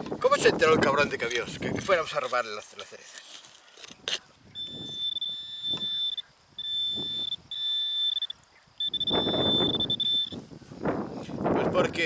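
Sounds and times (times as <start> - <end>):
soil scraping: 1.0 - 4.3
pinpointer high tone: 4.5 - 10.4.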